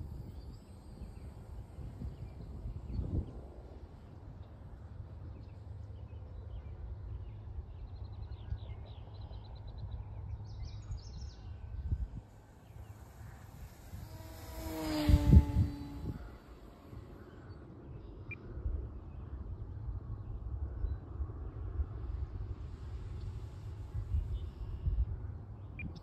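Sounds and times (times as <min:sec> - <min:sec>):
wind on microphone: 0:00.0 - 0:04.6, 0:11.0 - 0:26.0
thin high whine: 0:00.0 - 0:05.8, 0:11.5 - 0:18.4, 0:22.1 - 0:26.0
model airplane motor passing: 0:00.0 - 0:06.0, 0:11.6 - 0:19.0, 0:21.4 - 0:26.0.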